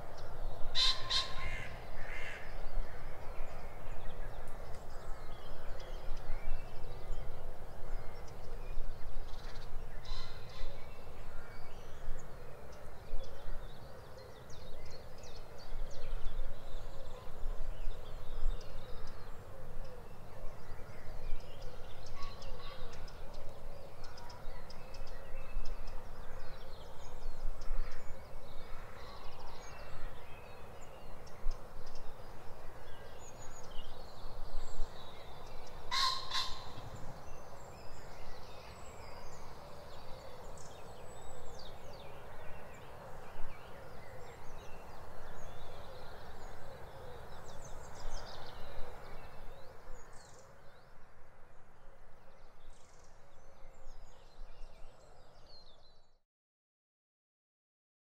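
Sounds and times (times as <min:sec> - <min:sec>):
birds chirping and singing: 0:11.8 - 0:50.9.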